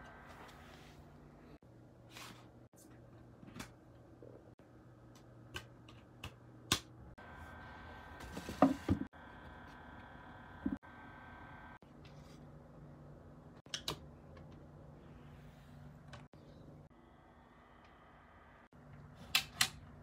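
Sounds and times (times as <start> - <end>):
faint hum: 0.0 - 20.0.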